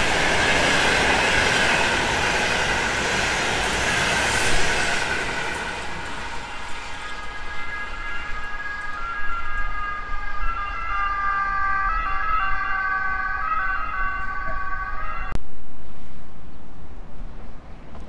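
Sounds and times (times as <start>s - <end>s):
train brakes squealing: 0.0s - 11.2s.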